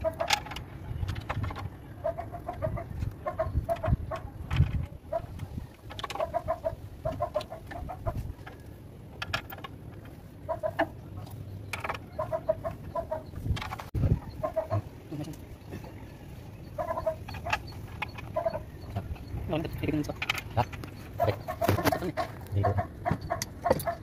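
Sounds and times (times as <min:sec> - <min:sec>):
chickens clucking: 0:00.0 - 0:08.8, 0:09.4 - 0:24.0.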